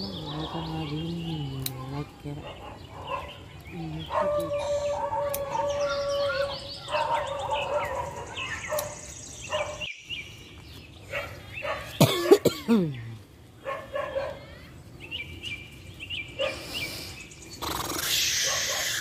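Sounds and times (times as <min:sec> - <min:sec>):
birds chirping: 0:00.0 - 0:19.0
dog barking: 0:02.4 - 0:03.4, 0:04.0 - 0:09.9, 0:11.1 - 0:12.1, 0:13.6 - 0:14.5, 0:16.4 - 0:16.6, 0:18.4 - 0:19.0
dog howling: 0:04.0 - 0:08.8.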